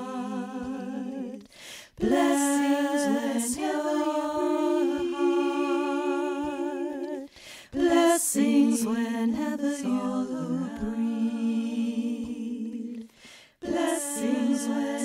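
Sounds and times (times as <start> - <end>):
women singing a cappella: 0.0 - 15.0
breath in: 1.5 - 2.0, 7.3 - 7.8, 13.0 - 13.6.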